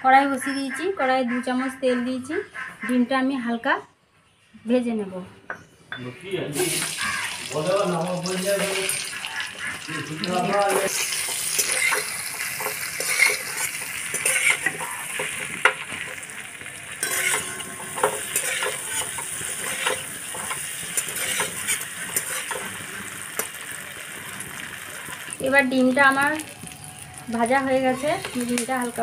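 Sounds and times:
eggs sizzling in oil: 6.5 - 29.0
metal spatula scraping pan: 10.5 - 16.2, 17.0 - 23.6.

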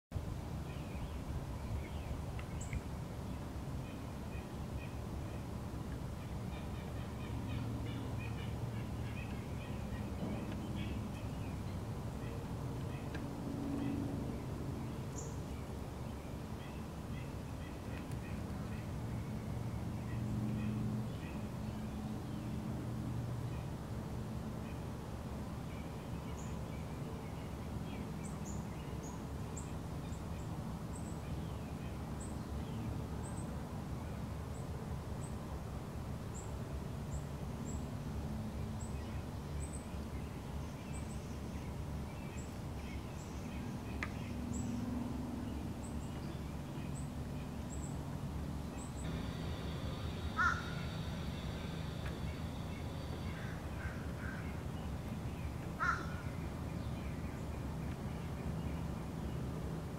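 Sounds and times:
loud bird call: 49.1 - 54.4.

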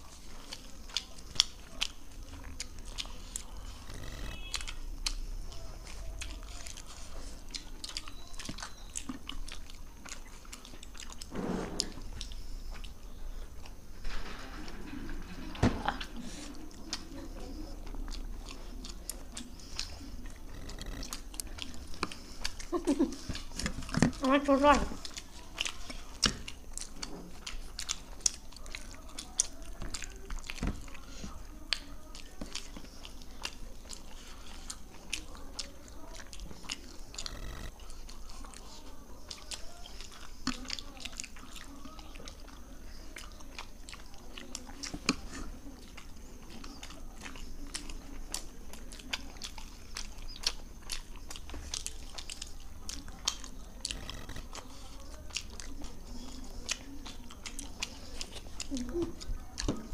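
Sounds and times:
people chewing: 0.0 - 59.9.

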